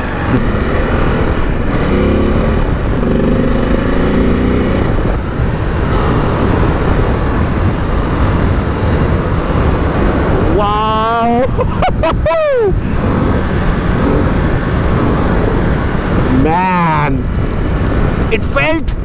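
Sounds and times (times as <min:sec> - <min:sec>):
motorcycle engine accelerating: 0:00.0 - 0:11.2, 0:12.8 - 0:16.4
road and wind noise: 0:00.0 - 0:19.0.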